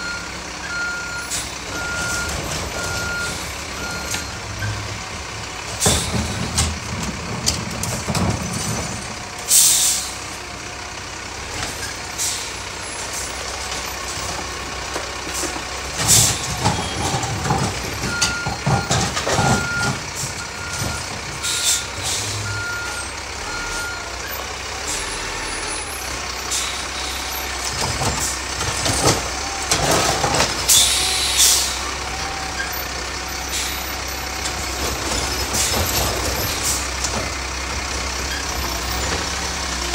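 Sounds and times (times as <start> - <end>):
reversing beeper: 0.0 - 4.9, 16.4 - 26.0
garbage truck engine running: 0.0 - 39.9
air brake hisses: 9.5 - 10.2, 21.5 - 22.4, 30.7 - 31.8.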